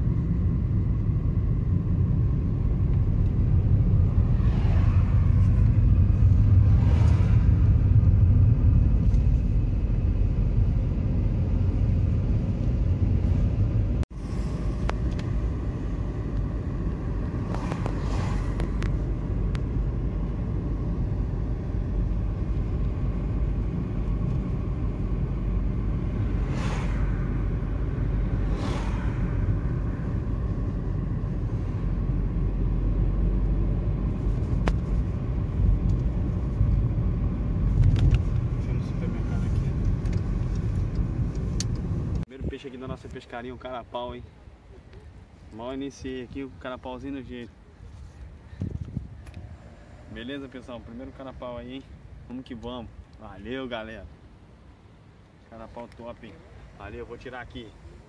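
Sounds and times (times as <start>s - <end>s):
road and engine rumble in car: 0.0s - 58.0s.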